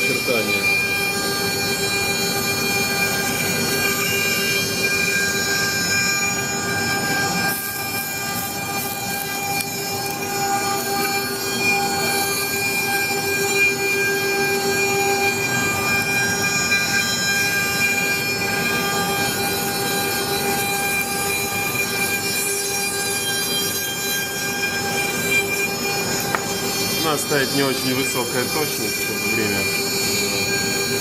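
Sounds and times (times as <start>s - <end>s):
router spindle whine: 0.0s - 31.0s.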